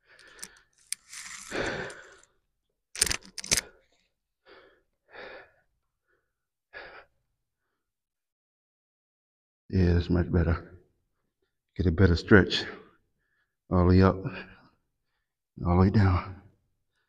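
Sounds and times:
man breathing heavily: 0:00.0 - 0:02.3, 0:04.4 - 0:07.7.

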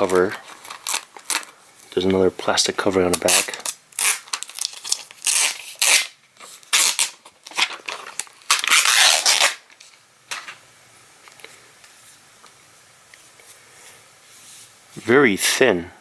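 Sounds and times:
plastic film peeling: 0:00.0 - 0:10.4.

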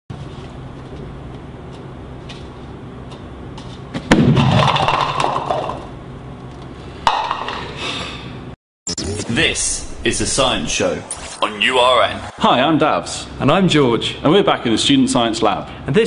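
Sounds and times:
steady low hum: 0:00.1 - 0:16.0
plastic cups clattering: 0:04.6 - 0:05.9.

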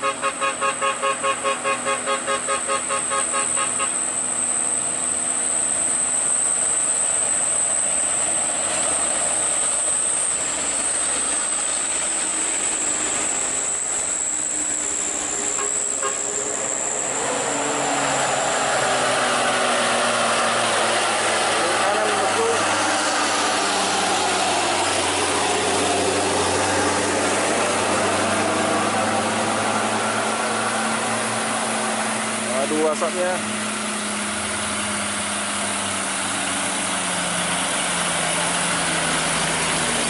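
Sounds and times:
truck horn pulses: 0:00.0 - 0:04.6, 0:13.1 - 0:20.6
diesel truck engines under load: 0:00.0 - 0:40.0.

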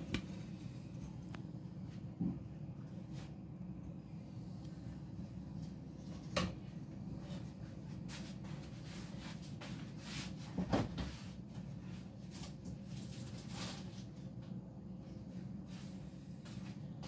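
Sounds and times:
low hum: 0:00.0 - 0:09.2.

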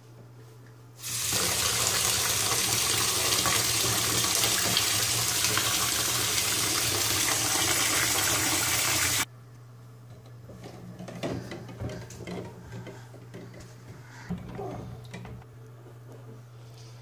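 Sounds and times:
tap water splashing into basin: 0:01.4 - 0:09.2.

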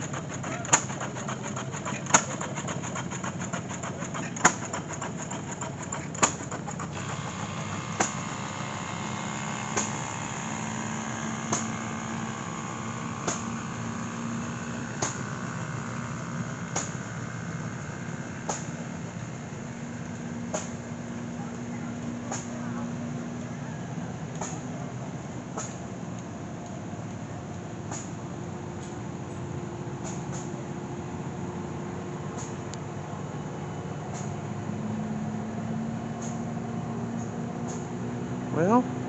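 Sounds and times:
stationary gas engine popping: 0:00.0 - 0:21.1
steady low hum: 0:00.0 - 0:39.0.

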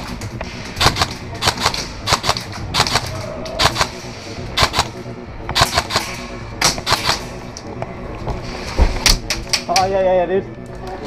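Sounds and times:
airsoft gun bursts: 0:00.8 - 0:04.0, 0:04.6 - 0:05.0.

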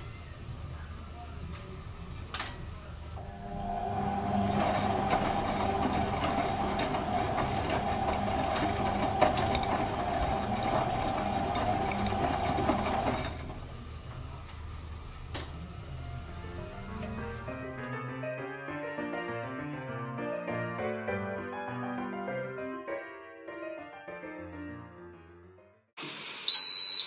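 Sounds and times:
washing machine motor hum: 0:02.8 - 0:17.8
laundry tumbling with clicks and splashes: 0:04.6 - 0:13.5.

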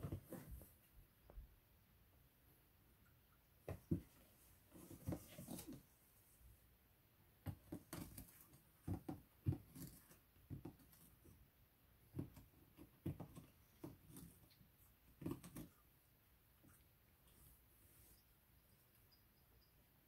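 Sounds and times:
kitten pawing inside cardboard box: 0:03.7 - 0:05.8.

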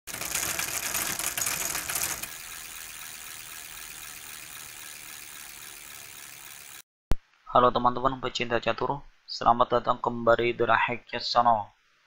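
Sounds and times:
dense crackling rattle: 0:00.1 - 0:02.3.

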